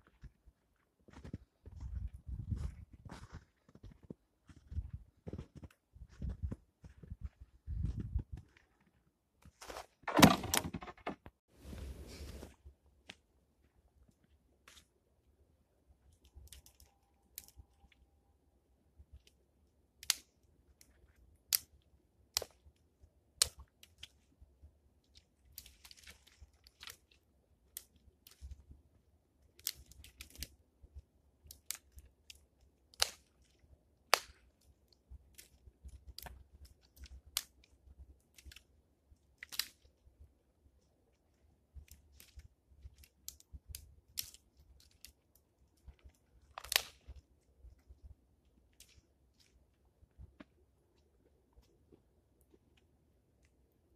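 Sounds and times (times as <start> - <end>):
sticks snapping: 20.0 - 20.3, 29.6 - 30.5, 31.4 - 33.3, 39.4 - 39.9, 46.5 - 47.2
crunching and rustling: 25.1 - 28.7, 41.1 - 53.5.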